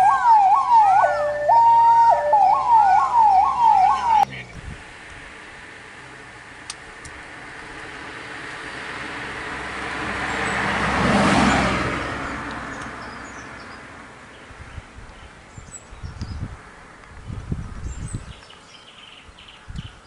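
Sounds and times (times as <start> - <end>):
car passing by: 7.3 - 14.2.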